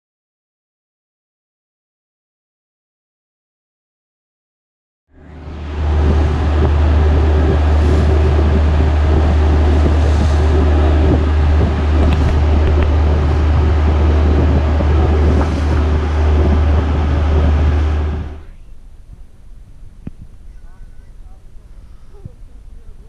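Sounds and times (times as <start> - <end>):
ferry engine drone: 5.1 - 23.0
water rushing in wake: 5.2 - 18.4
wind buffeting microphone: 5.2 - 20.5.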